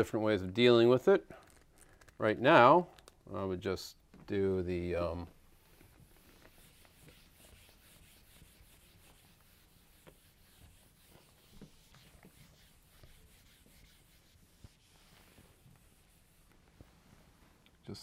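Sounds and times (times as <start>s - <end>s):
eraser rubbing on whiteboard: 6.0s - 16.9s.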